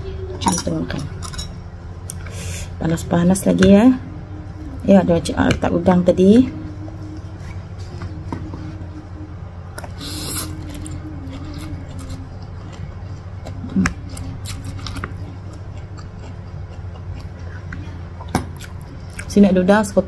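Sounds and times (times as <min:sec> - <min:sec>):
steady low hum: 0:00.0 - 0:20.0
chewing and wet mouth sounds: 0:09.8 - 0:19.5.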